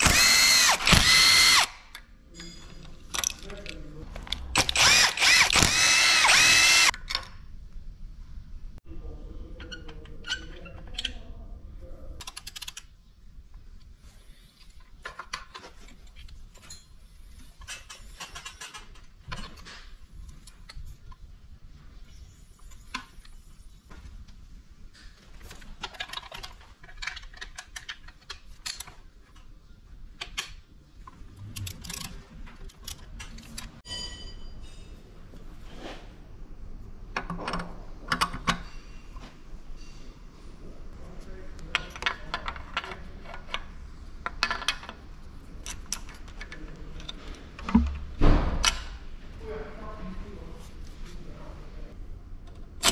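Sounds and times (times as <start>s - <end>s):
cordless drill whine: 0.0s - 1.8s, 4.6s - 6.9s.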